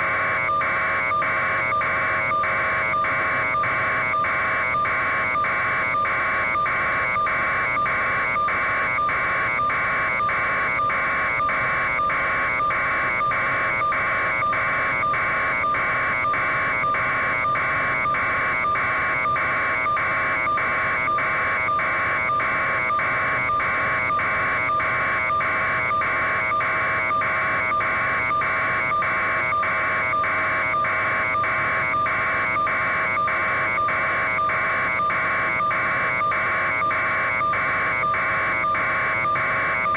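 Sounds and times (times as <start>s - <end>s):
constant whine: 0.0s - 39.9s.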